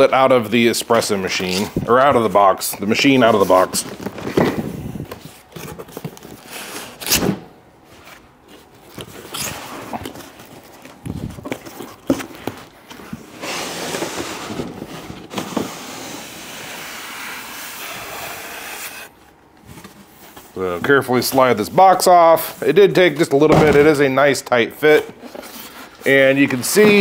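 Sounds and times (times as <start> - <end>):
cardboard rubbing and scraping: 13.3 - 19.1.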